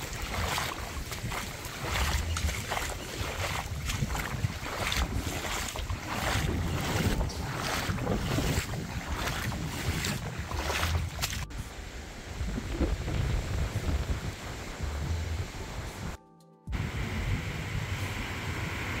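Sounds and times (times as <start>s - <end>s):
gusty wind buffeting microphone: 0.0s - 19.0s
light wind rush: 0.0s - 19.0s.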